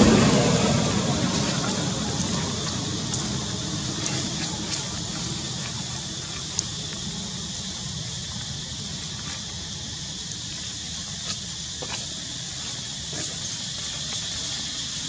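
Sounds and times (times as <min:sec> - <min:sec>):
low rumble: 0:00.0 - 0:08.4
faint sharp clicks: 0:06.4 - 0:07.0.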